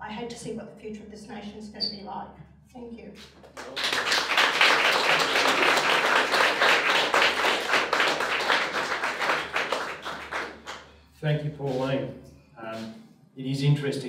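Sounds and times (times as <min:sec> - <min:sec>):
audience applauding: 0:03.5 - 0:10.9.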